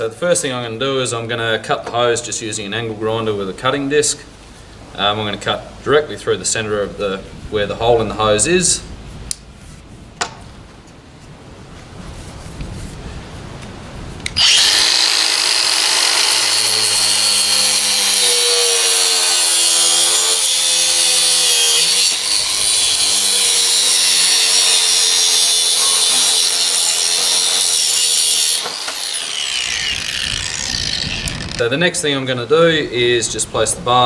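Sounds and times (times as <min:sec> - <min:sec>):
angle grinder cutting hose: 0:14.2 - 0:31.7.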